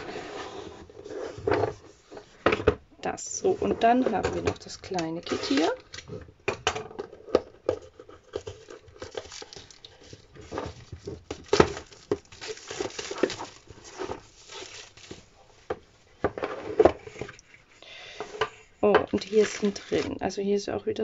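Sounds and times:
plastic shrink wrap tearing: 0:04.6 - 0:06.2, 0:08.2 - 0:15.3, 0:19.2 - 0:20.1.

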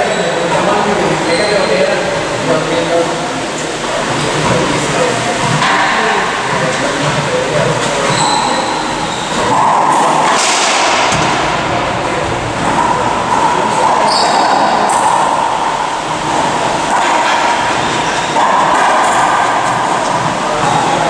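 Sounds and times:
loud steady rushing noise: 0:00.0 - 0:21.0
shoes squeaking on wooden floor: 0:07.9 - 0:09.5.

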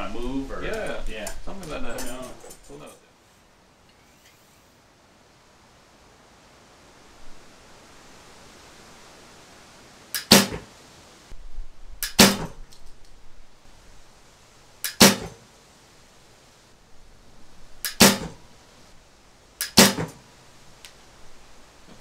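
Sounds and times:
recurve bow shot snapping: 0:10.2 - 0:10.7, 0:12.0 - 0:12.9, 0:14.8 - 0:15.4, 0:17.8 - 0:18.4, 0:19.6 - 0:20.2.

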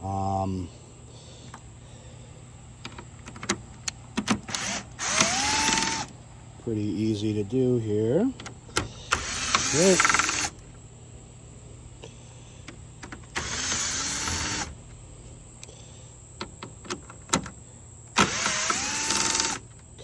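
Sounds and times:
cordless drill motor whining: 0:04.5 - 0:06.1, 0:09.1 - 0:10.6, 0:13.3 - 0:14.8, 0:18.2 - 0:19.7.

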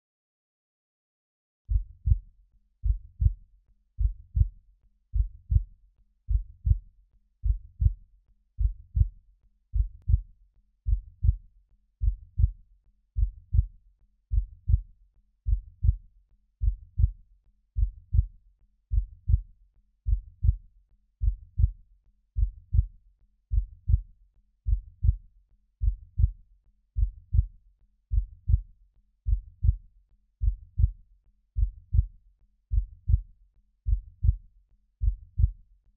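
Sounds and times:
heartbeat lub-dub: 0:01.7 - 0:02.2, 0:02.8 - 0:03.4, 0:05.1 - 0:05.7, 0:06.3 - 0:06.8, 0:08.6 - 0:09.1, 0:09.7 - 0:10.3, 0:12.0 - 0:12.6, 0:13.2 - 0:13.7, 0:14.3 - 0:14.8, 0:16.6 - 0:17.2, 0:17.8 - 0:18.3, 0:20.1 - 0:20.6, 0:21.2 - 0:21.8, 0:22.4 - 0:22.9, 0:23.5 - 0:24.0, 0:24.7 - 0:25.2, 0:25.8 - 0:26.4, 0:27.0 - 0:27.5, 0:28.1 - 0:28.6, 0:29.3 - 0:29.8, 0:30.4 - 0:31.0, 0:31.6 - 0:32.1, 0:32.7 - 0:33.2, 0:33.9 - 0:34.4, 0:35.0 - 0:35.6.

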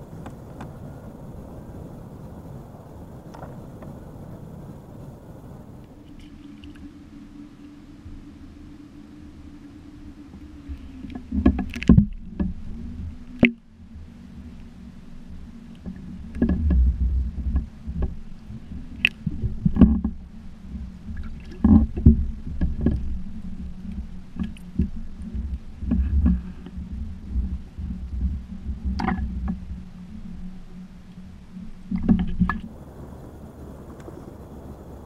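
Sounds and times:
steady low hum: 0:00.0 - 0:35.0
muffled water sloshing: 0:10.1 - 0:35.0.

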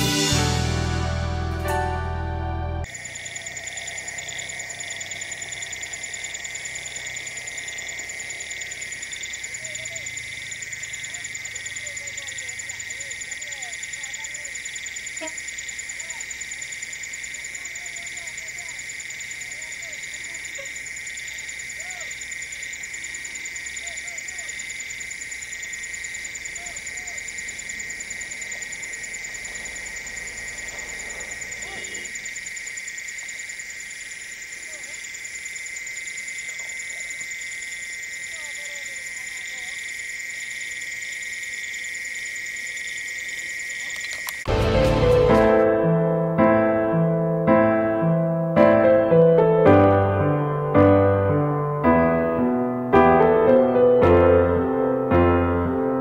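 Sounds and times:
insects trilling: 0:02.8 - 0:45.7.

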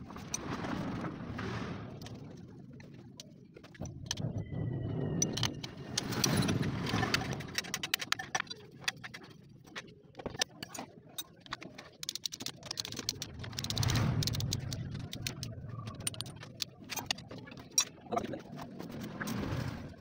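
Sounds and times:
low rumble: 0:13.1 - 0:20.0.

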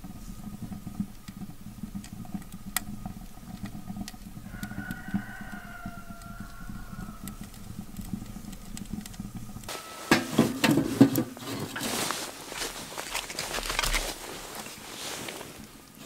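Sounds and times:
wood fire crackling: 0:00.0 - 0:16.0
faint distant whine: 0:04.4 - 0:13.4
stick clunking in stove: 0:10.1 - 0:11.9.

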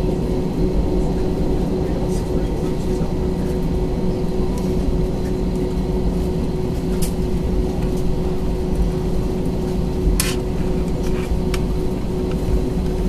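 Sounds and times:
airplane cabin engine rumble: 0:00.0 - 0:13.0.

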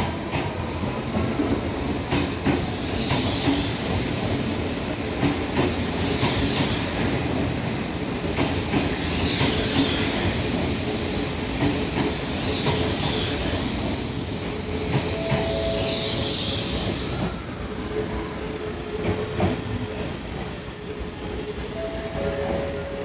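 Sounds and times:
train wheels rolling on rails: 0:00.0 - 0:23.0
rail joint clicks: 0:11.5 - 0:18.2.

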